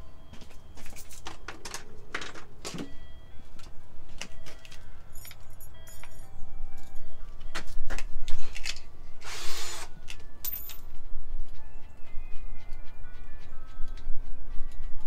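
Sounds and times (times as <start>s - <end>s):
metallic clinking and jangling: 0.8s - 2.4s, 4.2s - 7.2s, 10.1s - 11.1s.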